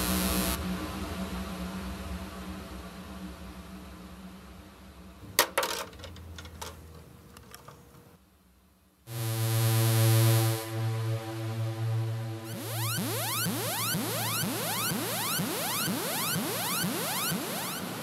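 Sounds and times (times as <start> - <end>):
loud electronic music: 9.1 - 18.0
soft synthesizer music: 9.1 - 18.0.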